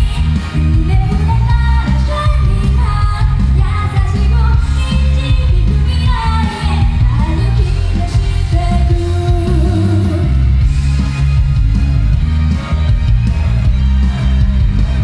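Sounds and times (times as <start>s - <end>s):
woman singing into microphone: 0.0s - 10.4s
pop-rock backing track: 0.0s - 15.0s.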